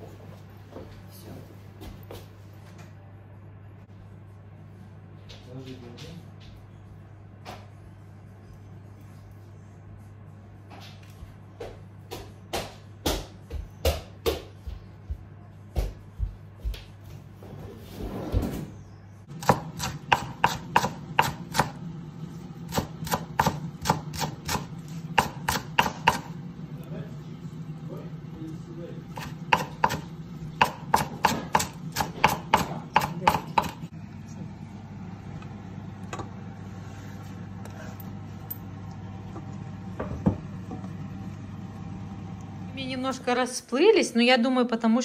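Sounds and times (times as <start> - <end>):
steady low hum: 0.0 - 44.5
knife chopping on cutting board: 19.4 - 21.8, 22.7 - 26.4, 29.1 - 33.8.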